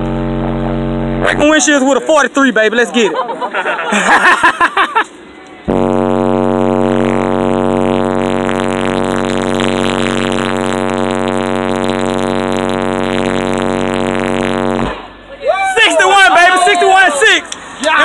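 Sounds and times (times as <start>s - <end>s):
distorted low bass tone: 0.0s - 1.8s, 5.7s - 15.3s.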